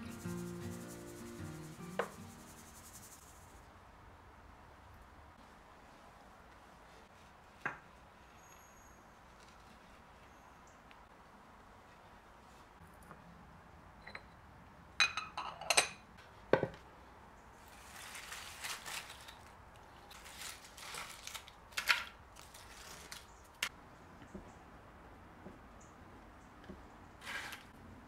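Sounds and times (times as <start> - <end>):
dry seed heads rustling on concrete: 17.6 - 23.7, 27.2 - 27.8.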